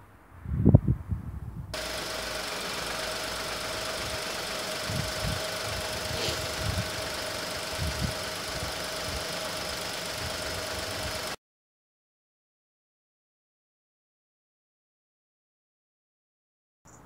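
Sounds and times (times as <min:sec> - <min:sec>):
car engine idling: 0:01.8 - 0:11.4.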